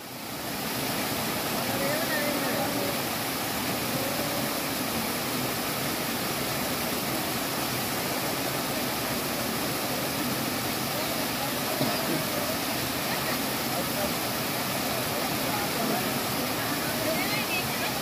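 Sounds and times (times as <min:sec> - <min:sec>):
water cascading over rock: 0:00.0 - 0:18.0.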